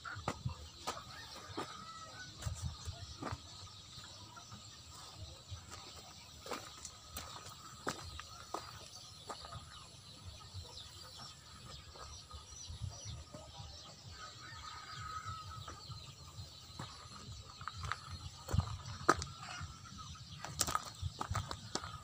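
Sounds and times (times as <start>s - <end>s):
distant chickens: 0.0s - 22.0s.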